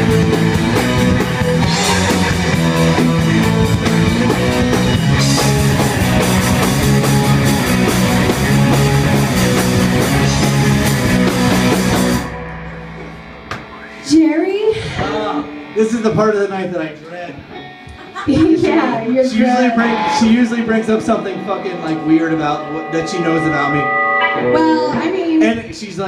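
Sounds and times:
drum kit with crashing cymbals: 0.0s - 15.7s
bass guitar: 0.0s - 26.0s
distorted electric guitar: 0.0s - 26.0s.

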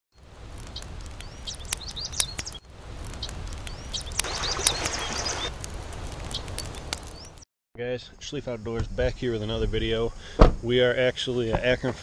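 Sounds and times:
small birds chirping: 0.6s - 5.5s, 6.3s - 7.4s
rushing stream water: 4.2s - 5.5s.

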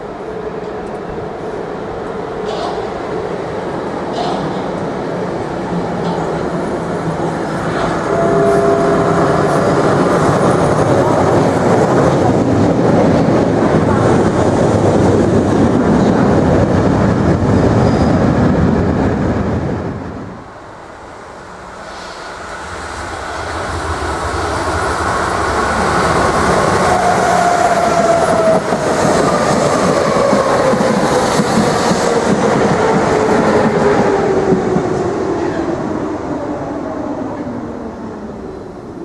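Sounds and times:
train rumble and wheel clatter: 0.0s - 39.0s
train wheel squeal: 7.6s - 11.0s, 17.6s - 18.4s.

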